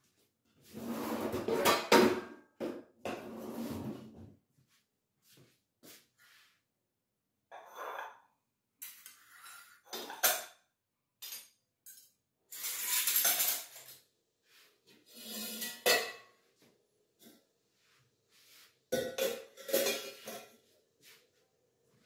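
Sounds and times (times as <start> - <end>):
utensils scraping and rustling: 12.5 - 14.0, 15.0 - 16.0.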